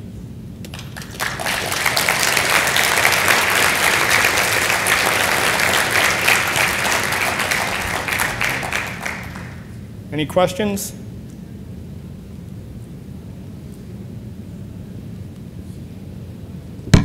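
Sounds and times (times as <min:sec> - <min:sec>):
audience applauding: 0:00.7 - 0:09.8.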